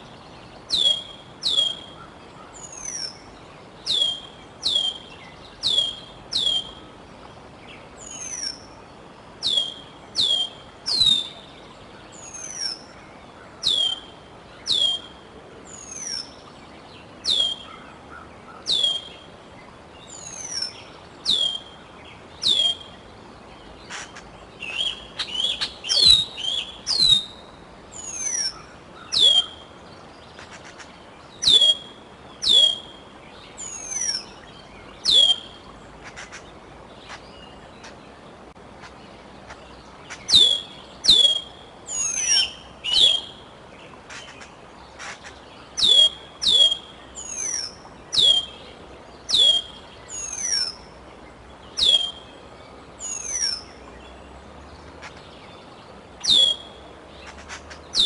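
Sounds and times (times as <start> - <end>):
young eagle whistling calls: 40.3 - 43.4, 45.8 - 47.6, 49.3 - 50.8, 51.8 - 52.2, 56.2 - 56.7.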